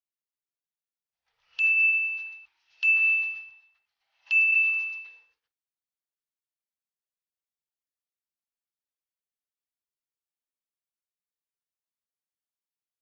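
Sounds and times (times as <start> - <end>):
click-and-ding chimes: 1.5 - 5.4.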